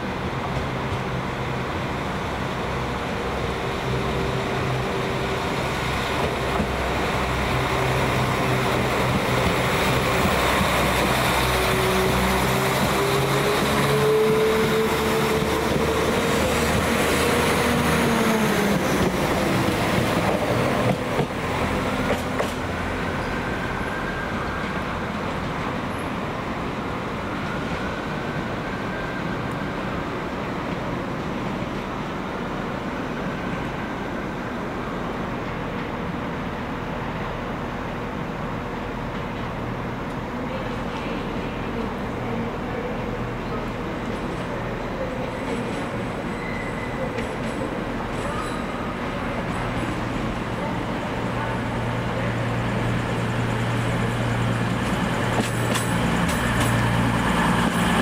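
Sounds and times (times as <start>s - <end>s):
passenger train drive tones: 3.0s - 30.4s, 42.6s - 58.0s.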